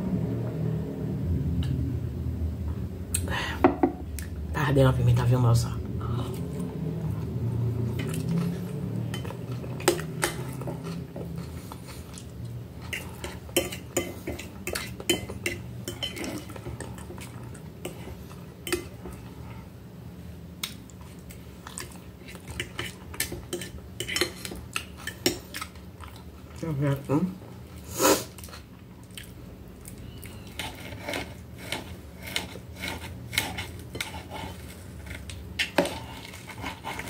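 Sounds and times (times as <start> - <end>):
cutlery scraping glass plate: 30.5 - 37.0.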